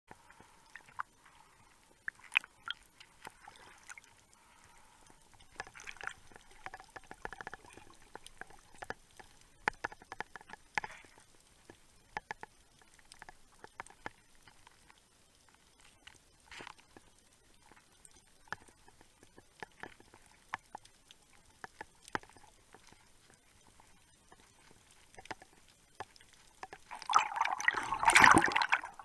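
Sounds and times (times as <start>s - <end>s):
muffled swishes of water: 0.1s - 29.0s
underwater clicks and knocks: 5.3s - 14.5s, 25.1s - 29.0s.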